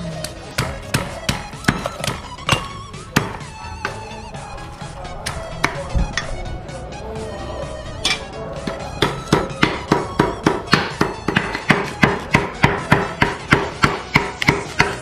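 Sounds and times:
background music: 0.0 - 15.0
cleaver chopping on board: 0.6 - 3.4, 8.7 - 15.0.

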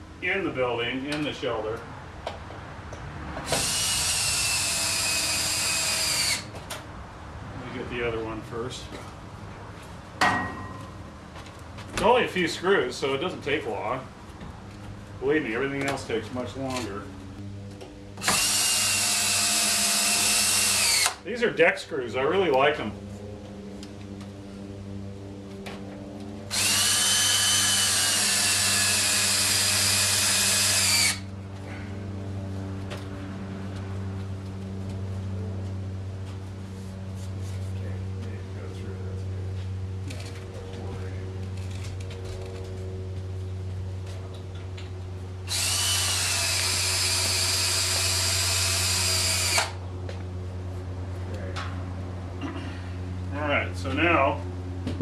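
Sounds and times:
cordless drill driving screw into wood: 3.5 - 6.5, 18.2 - 21.2, 26.5 - 31.2, 45.5 - 49.8.

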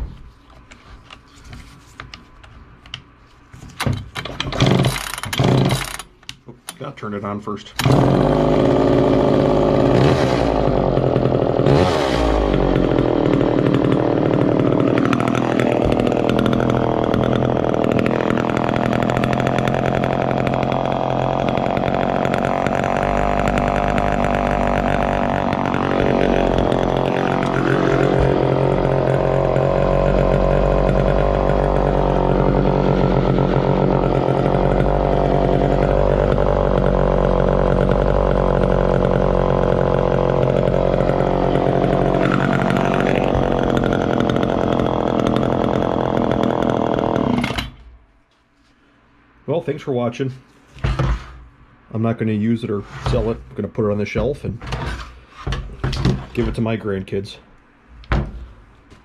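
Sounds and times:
chainsaw engine running: 4.3 - 6.1, 7.8 - 47.8.

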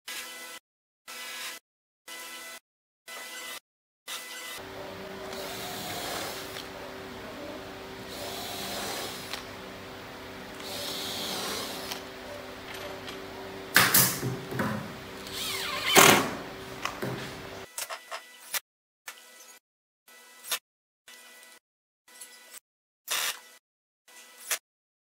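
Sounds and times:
cordless drill driving screws: 5.1 - 9.8, 10.5 - 17.2.

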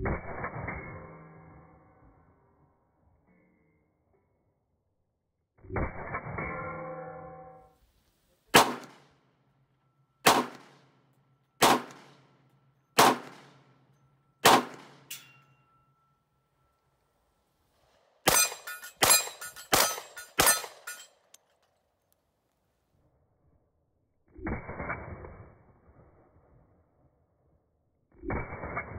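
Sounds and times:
pistol shots: 8.5 - 9.0, 10.2 - 10.9, 11.6 - 12.2, 13.0 - 13.7, 14.4 - 15.1, 18.2 - 21.0.

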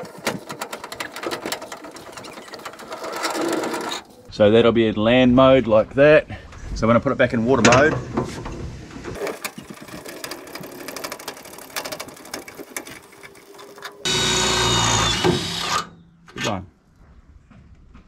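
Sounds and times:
metal clicking and clunking: 0.0 - 4.2, 7.6 - 14.1
cordless drill boring through metal: 12.2 - 15.9.

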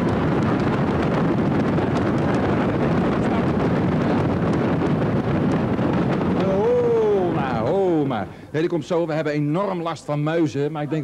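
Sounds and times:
audience stamping feet: 0.0 - 6.6.

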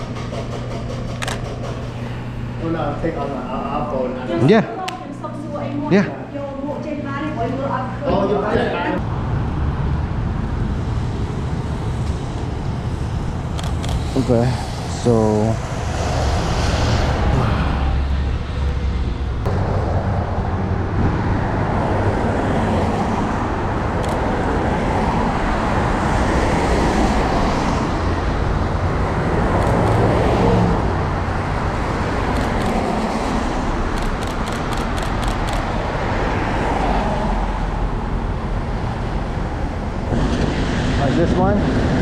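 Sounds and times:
wind rumble on microphone: 9.0 - 33.9, 36.8 - 42.0
cars passing on wet road: 9.0 - 42.0.

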